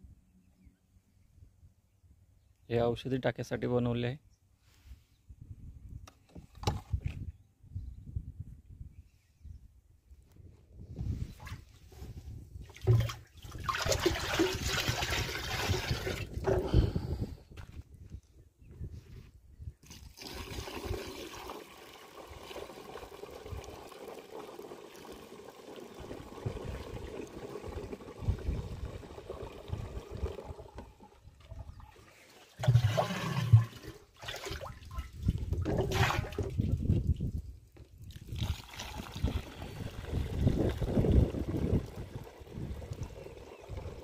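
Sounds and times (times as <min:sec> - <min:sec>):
liquid pouring into a tank: 0:12.6 - 0:17.0, 0:19.8 - 0:37.2, 0:38.0 - 0:44.0
liquid splashing: 0:12.7 - 0:16.3, 0:31.4 - 0:36.7.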